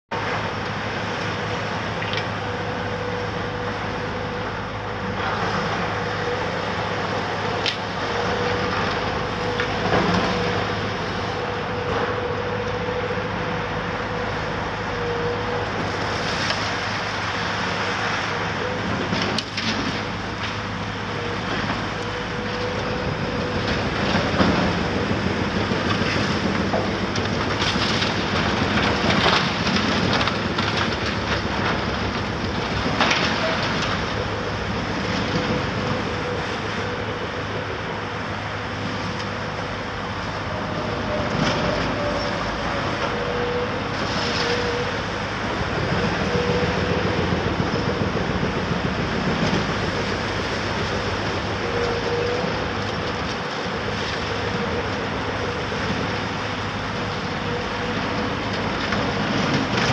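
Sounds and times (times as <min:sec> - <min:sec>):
excavator diesel engine whining: 0:00.1 - 0:59.9
demolition debris crunching: 0:14.9 - 0:59.9.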